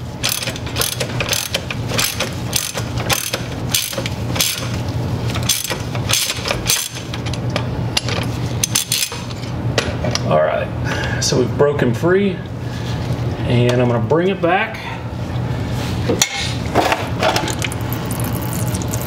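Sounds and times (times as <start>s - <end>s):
steady low hum: 0.0s - 19.0s
ratchet wrench clicking: 0.2s - 4.7s, 5.4s - 7.1s, 8.6s - 9.2s.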